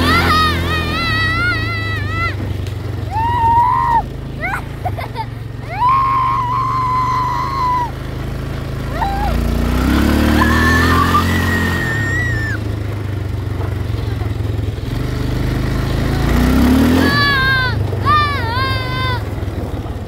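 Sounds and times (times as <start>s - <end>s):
girl squealing: 0.0s - 2.5s, 3.1s - 8.0s, 8.9s - 9.5s, 10.2s - 12.7s, 16.9s - 19.4s
atv engine running: 0.0s - 20.0s.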